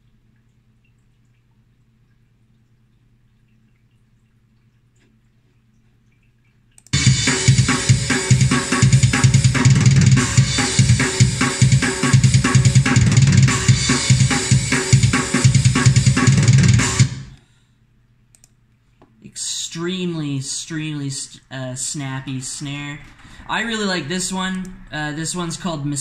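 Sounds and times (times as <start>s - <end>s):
fast metal drum groove: 7.0s - 17.4s.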